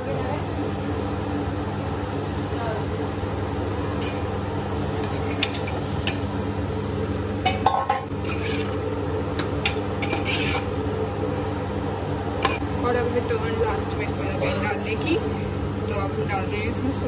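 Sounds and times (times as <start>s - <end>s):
steady low hum: 0.0s - 17.0s
metal spoon scraping pot: 8.1s - 8.8s, 10.0s - 10.7s.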